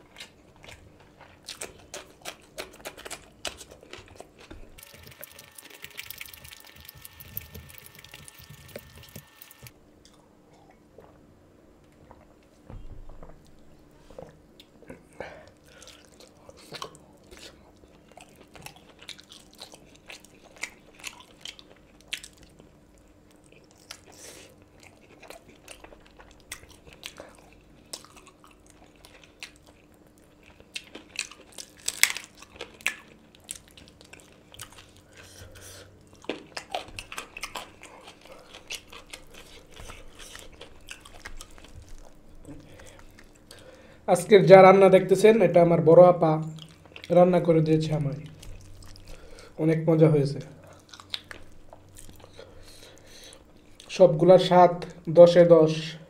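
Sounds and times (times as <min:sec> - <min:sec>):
close chewing and mouth smacks: 0:00.0 - 0:11.2, 0:14.2 - 0:44.0, 0:46.4 - 0:47.2, 0:48.1 - 0:49.6, 0:50.4 - 0:54.0
crunching bites: 0:30.6 - 0:33.7.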